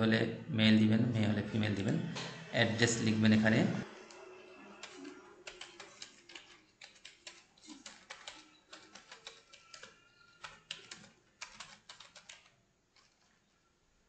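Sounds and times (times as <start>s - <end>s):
keyboard keys clicking: 4.8s - 13.4s.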